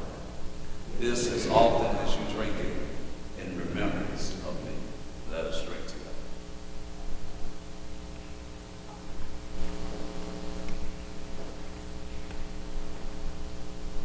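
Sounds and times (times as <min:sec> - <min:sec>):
steady hum of held tones: 0:00.0 - 0:14.0.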